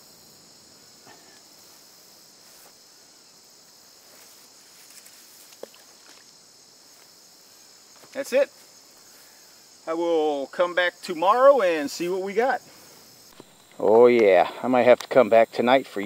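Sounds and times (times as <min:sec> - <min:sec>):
high-pitched insect chorus: 0:00.0 - 0:16.0
bait splashing into water: 0:05.4 - 0:06.3.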